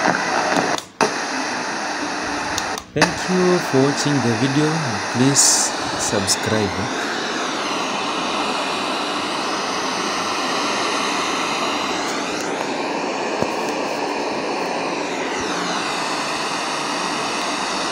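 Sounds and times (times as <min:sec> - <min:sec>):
radio static hiss: 0:00.0 - 0:17.9.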